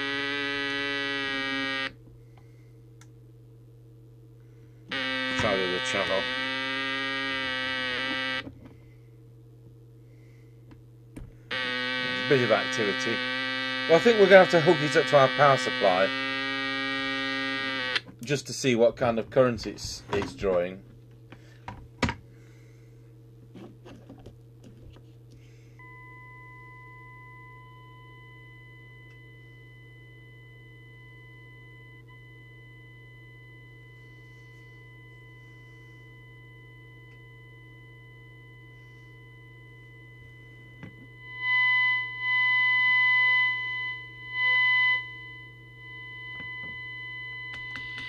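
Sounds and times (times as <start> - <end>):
low hum: 0.0 - 18.1, 18.9 - 48.0
walkie-talkie speaker whistling: 4.9 - 8.4, 11.5 - 18.0.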